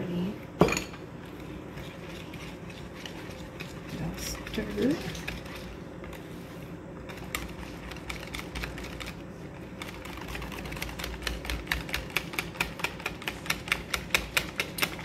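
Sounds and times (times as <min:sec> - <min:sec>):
utensil clicking against bowl: 0:09.8 - 0:15.0.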